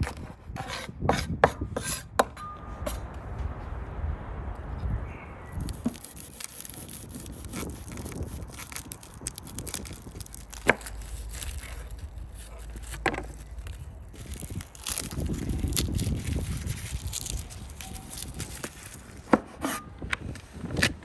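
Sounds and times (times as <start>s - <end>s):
garlic skin crackling: 5.5s - 19.3s.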